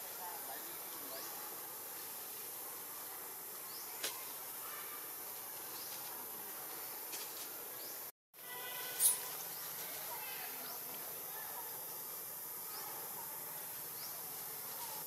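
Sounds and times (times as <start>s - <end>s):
high-pitched insect buzz: 8.5s - 9.6s.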